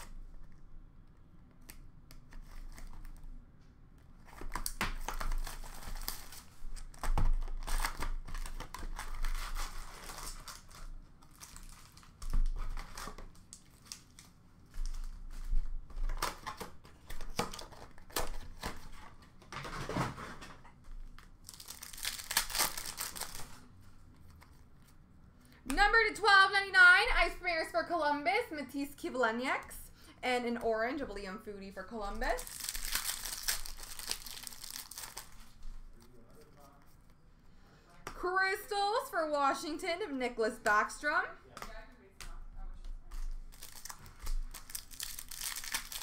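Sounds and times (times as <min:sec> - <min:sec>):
wrappers crinkling and ripping: 0:04.2 - 0:20.4, 0:21.0 - 0:24.7, 0:32.3 - 0:36.8, 0:43.1 - 0:46.0.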